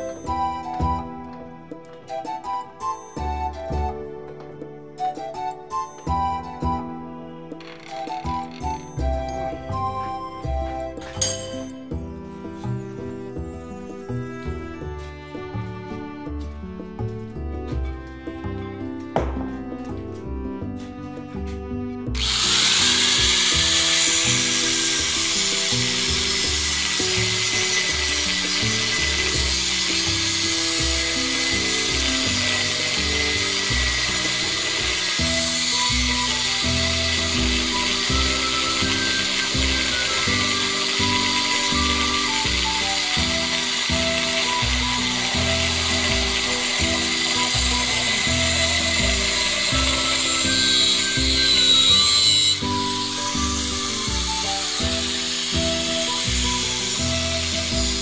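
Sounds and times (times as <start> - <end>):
background music with bass: 0.0 - 58.0
angle grinder on steel: 7.6 - 9.7, 11.1 - 11.7, 22.1 - 58.0.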